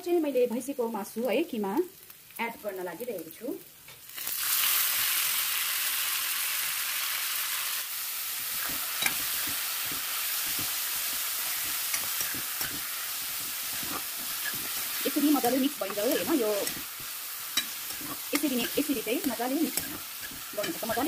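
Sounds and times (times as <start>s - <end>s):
meat sizzling in hot oil: 0.5s - 21.0s
steel spoon scraping a pan: 8.4s - 21.0s.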